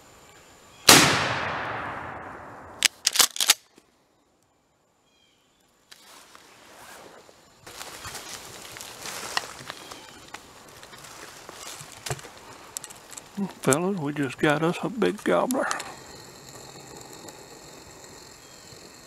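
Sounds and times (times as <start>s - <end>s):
shotgun blast echoing: 0.9s - 2.9s
rustling through dry leaves: 6.0s - 13.4s.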